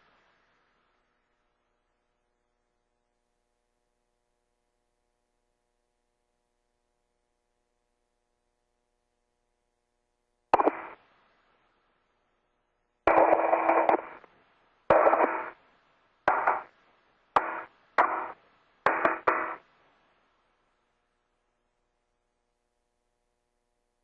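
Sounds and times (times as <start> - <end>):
radio static bursts: 10.6 - 11.0, 13.1 - 14.3, 14.9 - 15.6, 16.3 - 16.7, 17.4 - 19.6.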